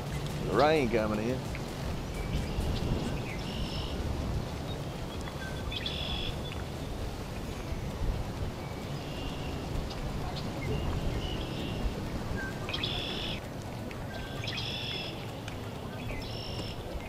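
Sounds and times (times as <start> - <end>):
songbird calling: 2.1 - 4.0, 4.7 - 6.9, 8.6 - 13.4, 14.1 - 16.9.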